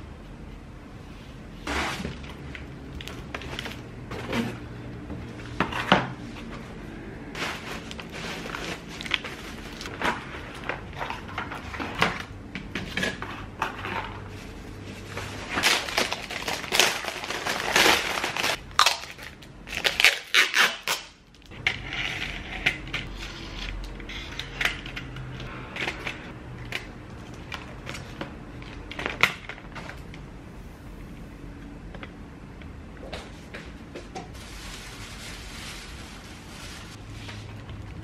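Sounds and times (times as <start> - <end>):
plastic and cardboard crinkling: 1.7 - 4.6, 7.4 - 21.6, 34.3 - 38.0.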